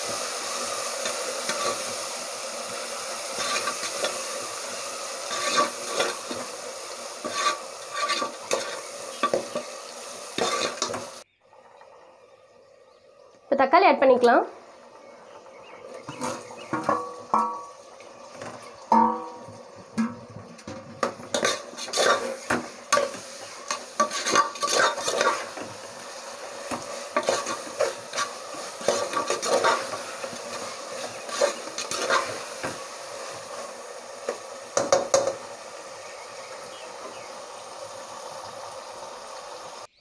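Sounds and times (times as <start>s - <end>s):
frying sizzle: 0.0s - 40.0s
metal spoon scraping a pot: 3.4s - 4.2s, 5.3s - 6.4s, 7.2s - 9.7s, 10.4s - 11.0s, 18.4s - 25.7s, 26.7s - 32.5s.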